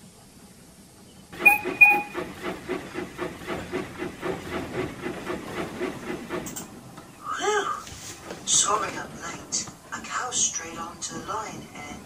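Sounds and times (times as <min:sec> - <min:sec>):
steam locomotive chuffing: 0:01.3 - 0:07.1
steam whistle toots: 0:01.4 - 0:02.3.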